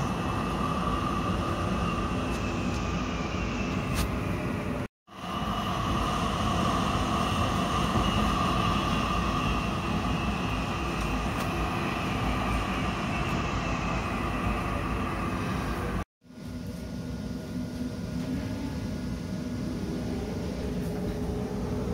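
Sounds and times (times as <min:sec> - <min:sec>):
high whine: 0:00.0 - 0:16.0
tram wheels rumbling: 0:00.0 - 0:16.0.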